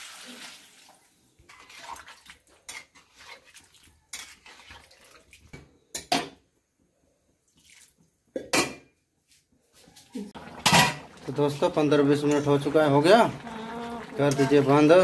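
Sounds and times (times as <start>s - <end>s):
metal lid clattering on pan: 10.6s - 11.1s.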